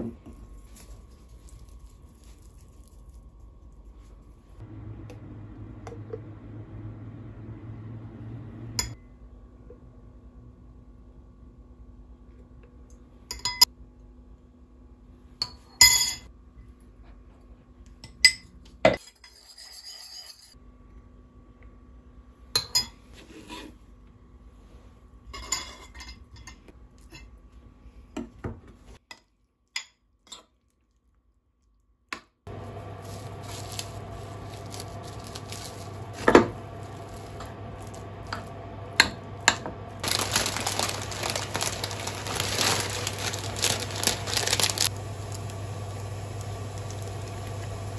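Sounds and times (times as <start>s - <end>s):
steady low hum: 0.0s - 15.4s, 32.5s - 47.9s
plastic packets crinkling: 32.7s - 38.2s, 40.0s - 45.6s.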